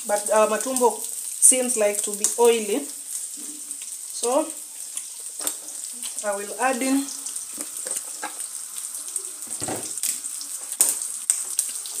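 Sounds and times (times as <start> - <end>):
meat sizzling in a frying pan: 0.0 - 12.0
sharp pops and crackles: 9.4 - 12.0.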